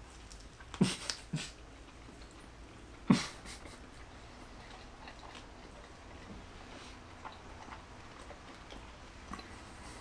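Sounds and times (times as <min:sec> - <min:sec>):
faint chewing: 0:00.0 - 0:10.0.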